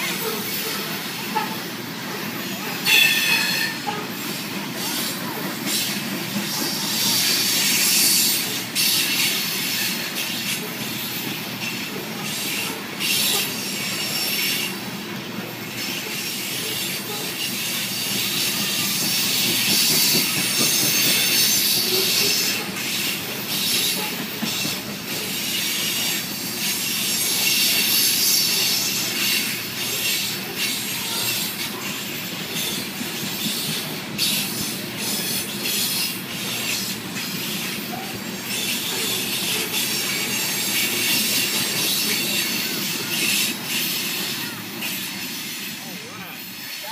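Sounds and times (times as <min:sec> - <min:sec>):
train wheels rolling on rails: 0:00.0 - 0:46.9
short clicks of train wheels: 0:15.7 - 0:45.7.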